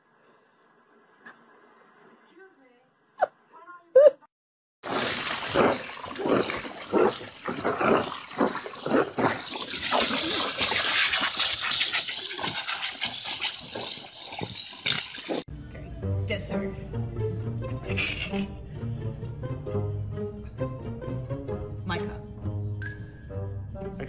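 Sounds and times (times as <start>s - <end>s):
dog splashing in water: 4.9s - 15.5s
garden hose spray hissing: 4.9s - 15.5s.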